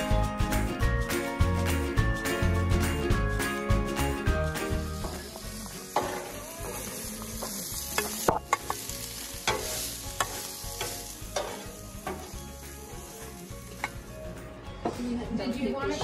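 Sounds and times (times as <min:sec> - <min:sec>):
food sizzling on griddle: 0:04.3 - 0:14.6
metal spatula scraping and tapping: 0:06.0 - 0:06.4, 0:07.4 - 0:12.4, 0:13.7 - 0:14.1.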